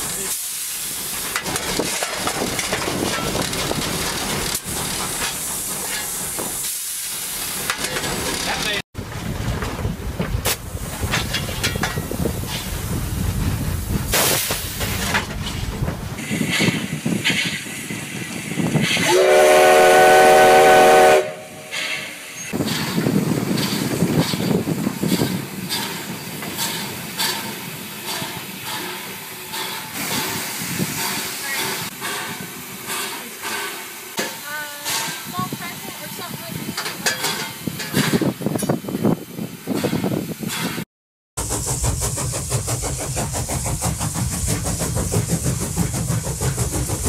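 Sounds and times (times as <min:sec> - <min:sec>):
steam hissing: 0:00.0 - 0:08.8, 0:10.4 - 0:15.1, 0:16.1 - 0:36.8, 0:41.4 - 0:47.0
steam whistle chord: 0:19.0 - 0:21.7.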